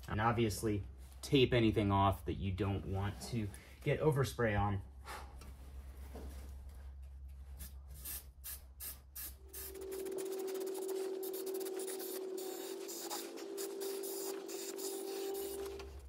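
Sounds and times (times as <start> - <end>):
aerosol spraying hiss: 7.6 - 15.9.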